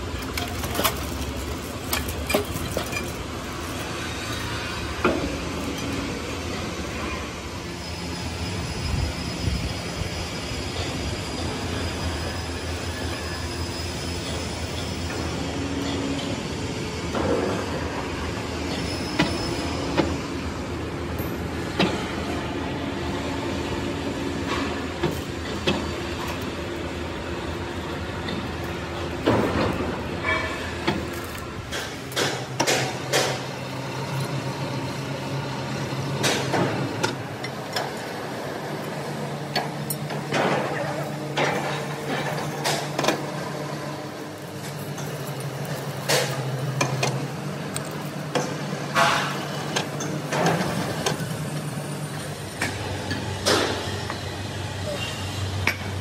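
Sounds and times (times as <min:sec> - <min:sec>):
steel chains clanking: 0:00.1 - 0:04.5.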